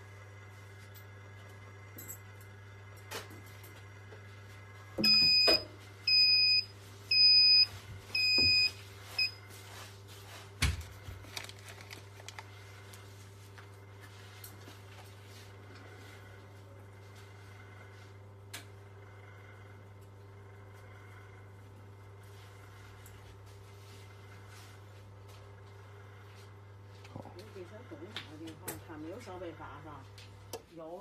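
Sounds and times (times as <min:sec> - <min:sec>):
steady low hum: 0:00.0 - 0:31.0
electronic buzzer beeping: 0:05.0 - 0:09.4.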